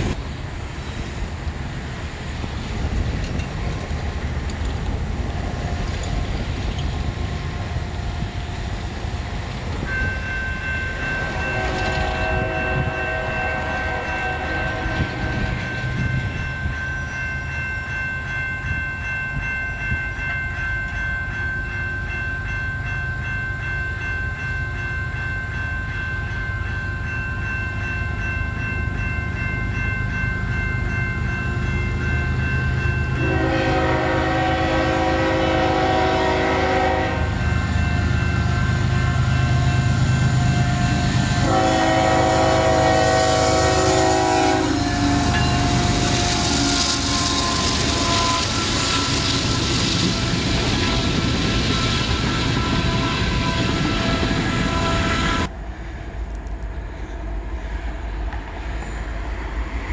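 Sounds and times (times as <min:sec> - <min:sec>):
freight train rumbling: 0:00.0 - 0:59.9
distant train horn: 0:11.0 - 0:16.1, 0:33.1 - 0:56.3.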